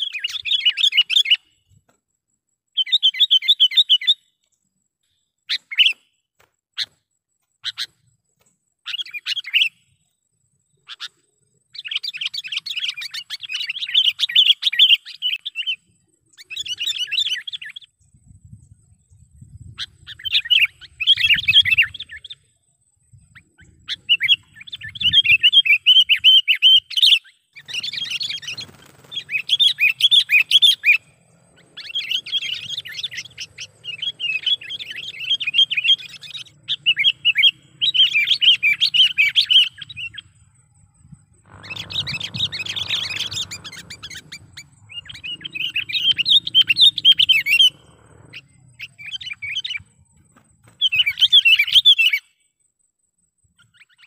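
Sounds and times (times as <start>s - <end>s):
bulbul chattering calls: 23.4s - 40.4s, 41.3s - 50.0s.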